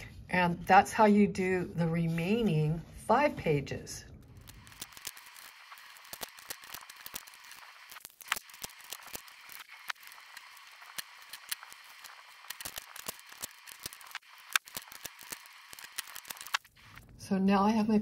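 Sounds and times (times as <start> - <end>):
paper pages crackling: 4.3 - 17.1
sharp paper snaps: 4.4 - 17.0.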